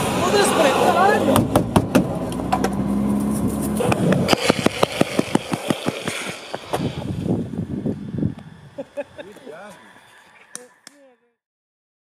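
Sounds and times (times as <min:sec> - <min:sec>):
car engine running: 0:00.0 - 0:05.8
fast sharp clicks: 0:03.8 - 0:06.8.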